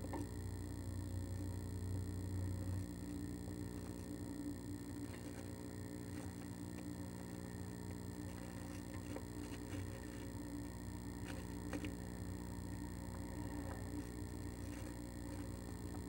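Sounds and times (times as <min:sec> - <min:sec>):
steady low hum: 0:00.0 - 0:16.0
bird scratching in nest box: 0:04.9 - 0:16.0.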